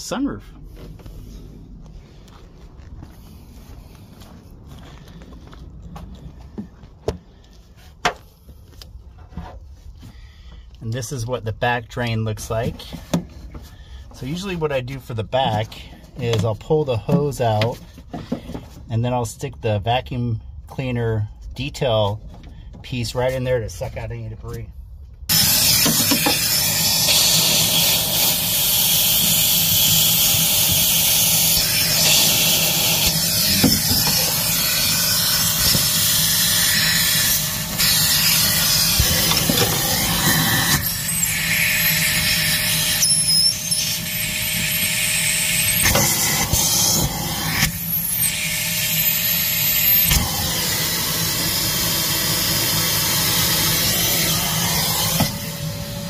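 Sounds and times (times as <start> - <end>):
shop vac sucking air: 25.3 - 56.0.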